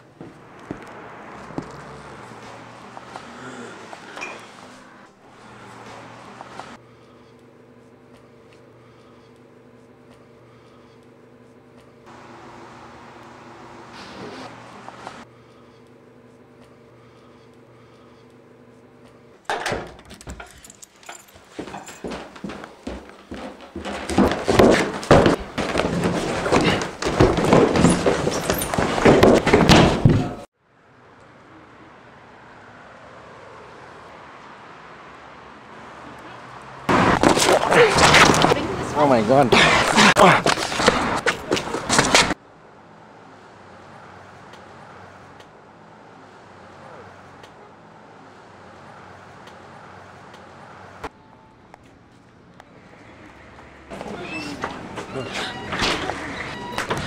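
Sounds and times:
city traffic noise: 0.0s - 19.4s, 30.4s - 57.0s
bodies grappling thuds and rustling: 22.1s - 30.4s.

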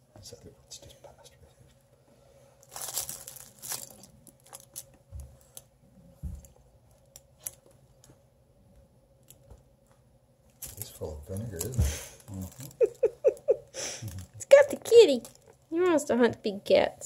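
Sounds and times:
plush toys rustling: 2.6s - 5.6s, 14.0s - 15.6s.

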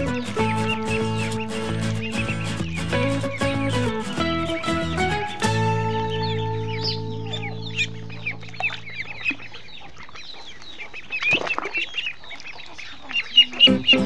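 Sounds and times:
guitar chord: 0.0s - 9.0s
ducklings peeping: 0.0s - 14.0s.

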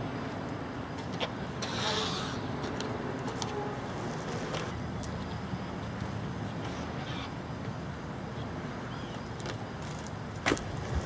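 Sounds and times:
bike rolling on concrete: 0.0s - 7.8s, 9.2s - 11.0s.

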